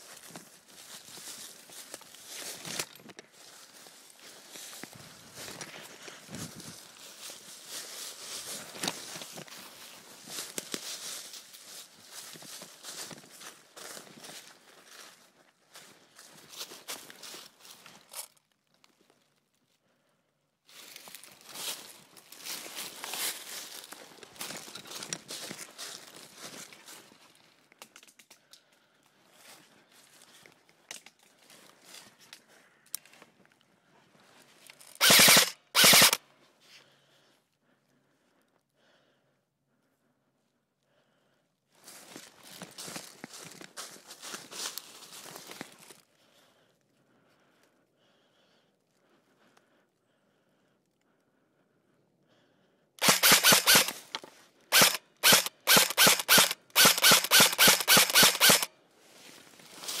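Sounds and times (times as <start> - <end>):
airsoft rifle bursts: 34.9 - 36.2, 53.0 - 58.7.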